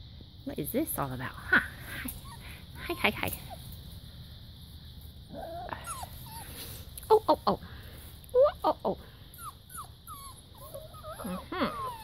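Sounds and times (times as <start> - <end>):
puppies whining and yelping: 1.9 - 2.6, 5.4 - 6.7, 9.4 - 12.0.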